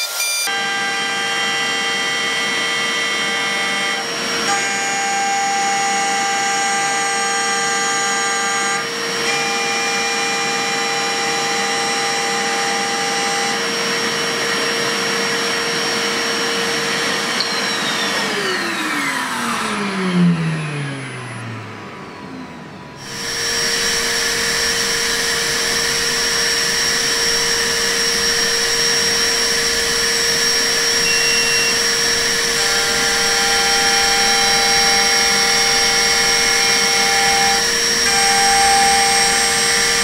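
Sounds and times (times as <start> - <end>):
end mill cutting steel: 23.0 - 40.0
milling spindle whining: 23.0 - 40.0
spindle winding down: 23.0 - 40.0.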